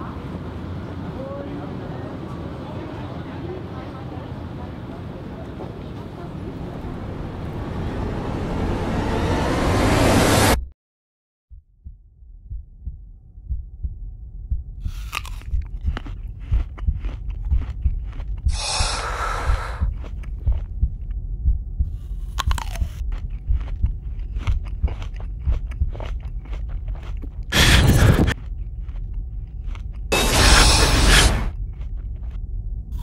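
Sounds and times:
low heartbeat-like thumping: 0:11.5 - 0:29.5
short hissing swells: 0:30.1 - 0:31.5.

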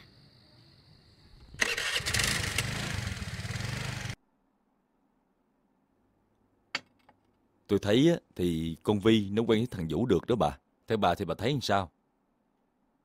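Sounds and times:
motor scooter engine starting: 0:01.4 - 0:04.2.

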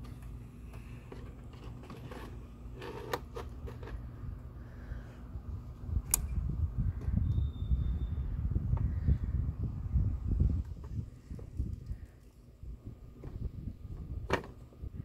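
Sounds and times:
sharp click: 0:06.0 - 0:06.4.

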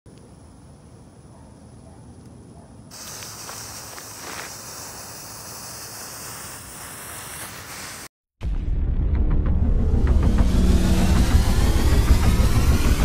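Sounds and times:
firework crackles: 0:02.9 - 0:08.2
firework spraying with high hiss: 0:02.9 - 0:08.2, 0:10.4 - 0:13.0.

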